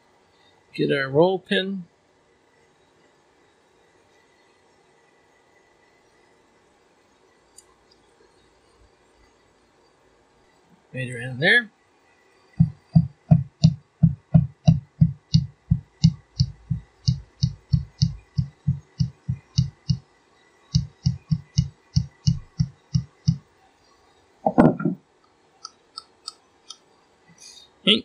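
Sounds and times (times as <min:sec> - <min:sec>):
mallet tapping metal punch: 0:12.6 - 0:20.0.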